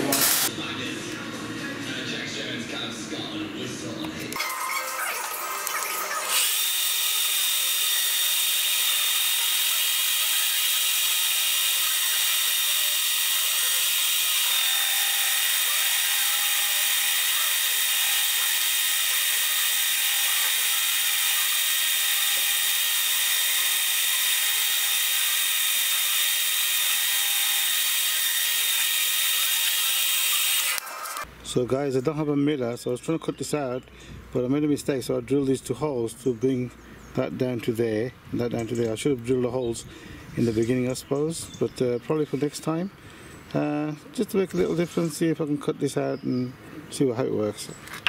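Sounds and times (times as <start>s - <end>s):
metal lathe whining: 4.4s - 31.2s.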